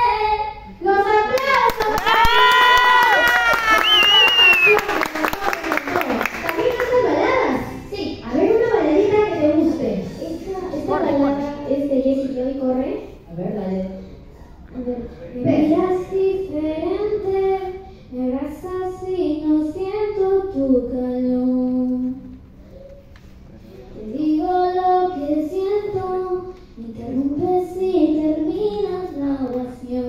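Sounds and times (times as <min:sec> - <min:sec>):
girl singing into a microphone: 0:14.7 - 0:22.3, 0:24.0 - 0:30.0.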